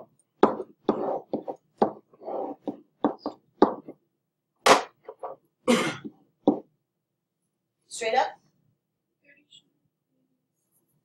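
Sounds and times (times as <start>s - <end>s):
pen rubbing on whiteboard: 0.0s - 3.9s
pen tapping on whiteboard: 0.0s - 4.0s, 6.0s - 6.7s.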